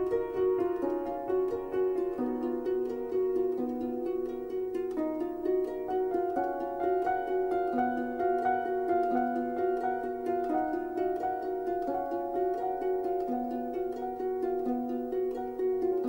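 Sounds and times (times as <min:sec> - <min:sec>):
harp-like plucked music: 0:00.0 - 0:16.0.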